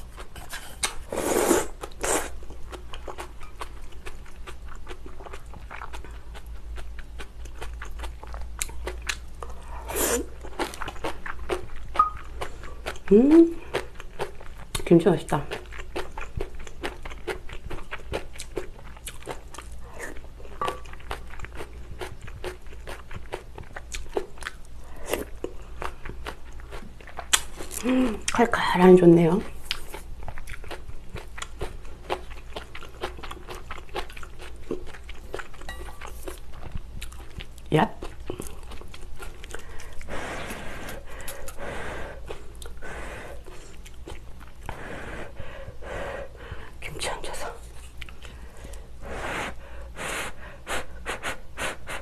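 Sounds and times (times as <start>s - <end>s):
chewing crunchy food: 0.0s - 28.6s, 29.4s - 45.4s, 47.3s - 48.9s
person slurping noodles: 0.4s - 2.4s.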